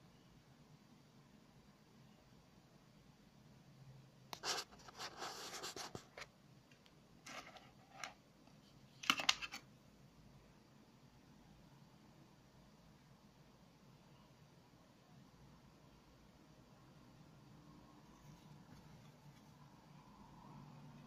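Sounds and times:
plastic bag rustling and scraping: 7.2 - 8.1.

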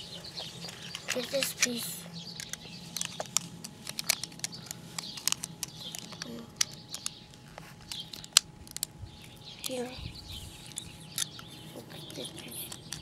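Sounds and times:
plastic bricks clicking together: 2.4 - 7.2, 7.9 - 8.9.

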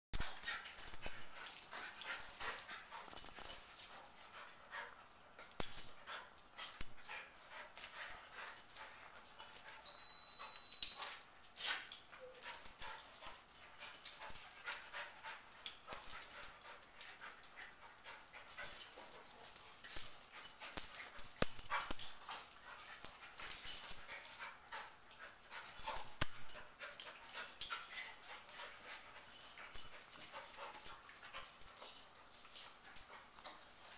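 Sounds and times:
high steady tone: 9.8 - 11.0.

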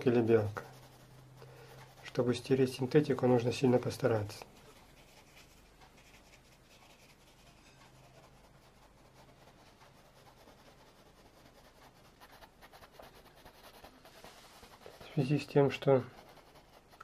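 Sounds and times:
brush stroking paint on canvas: 0.0 - 17.0.

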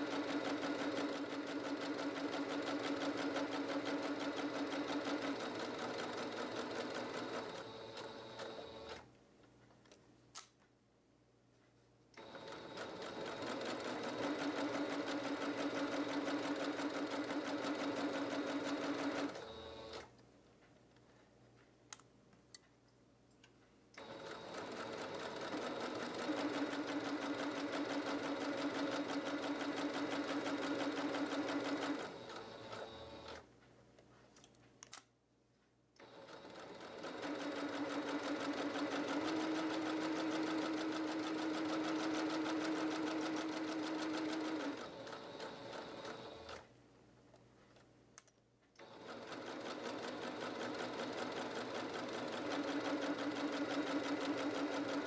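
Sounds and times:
electric sewing machine stitching: 0.0 - 9.0, 12.2 - 20.1, 24.0 - 33.4, 36.0 - 46.6, 48.8 - 55.0.

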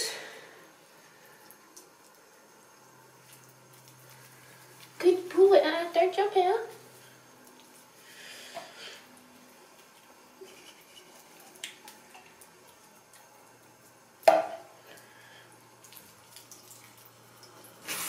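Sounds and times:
water trickling from tap: 14.8 - 17.8.

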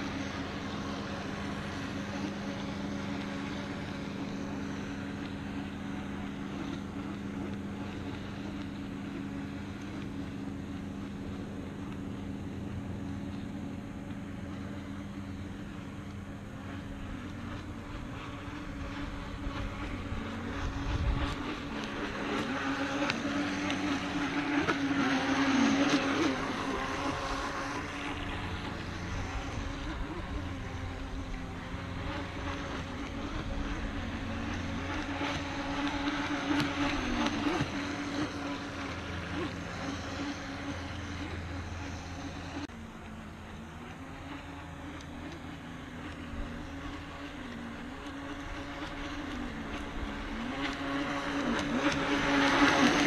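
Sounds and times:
model boat motor running: 0.0 - 53.0.

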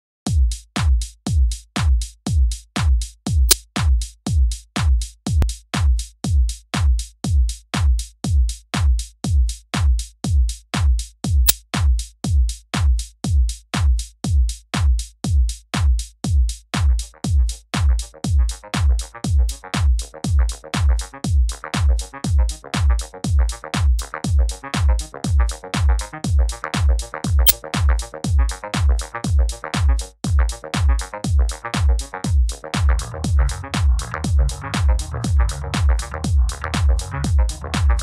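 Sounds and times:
drum machine kick beat: 0.3 - 38.0
electronic music: 32.3 - 38.0.

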